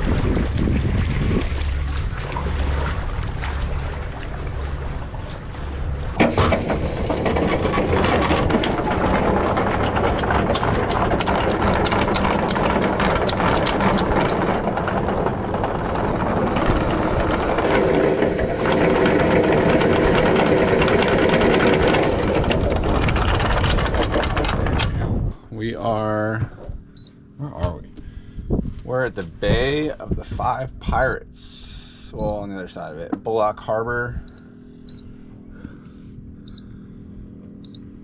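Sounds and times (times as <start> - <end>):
anchor chain rattling: 5.8 - 25.0.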